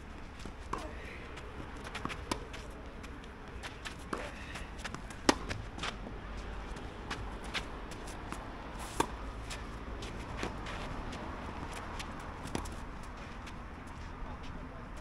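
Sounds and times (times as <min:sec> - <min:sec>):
tennis ball bouncing on court: 0:00.1 - 0:06.0, 0:06.7 - 0:13.6
light scuffing footsteps: 0:00.2 - 0:15.0
racket striking ball: 0:00.7 - 0:02.6, 0:03.4 - 0:05.9.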